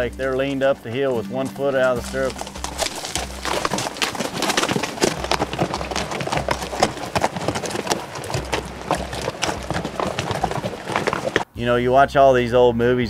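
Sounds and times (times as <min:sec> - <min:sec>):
horse hooves on gravel: 0:00.0 - 0:11.5.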